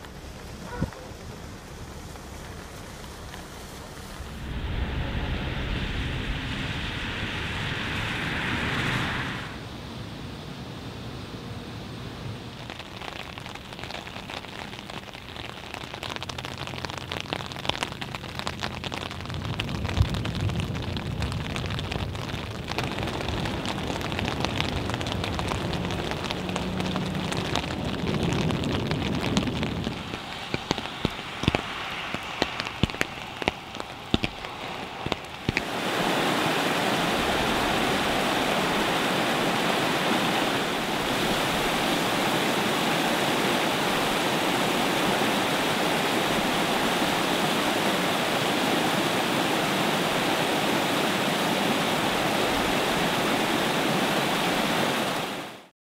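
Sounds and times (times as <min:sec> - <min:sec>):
low rumble: 0:00.0 - 0:12.6, 0:19.0 - 0:35.4
floodwater rushing: 0:00.0 - 0:55.7
heavy rain on wet pavement: 0:00.0 - 0:55.7.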